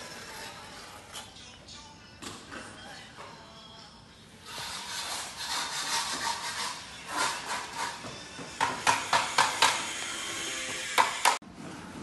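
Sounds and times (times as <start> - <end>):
trowel scraping tiles: 0.0 - 1.3, 4.4 - 8.2.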